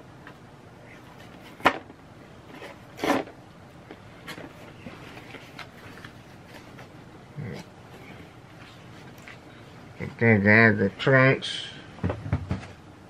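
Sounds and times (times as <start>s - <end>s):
packaging scrape: 2.5s - 3.4s.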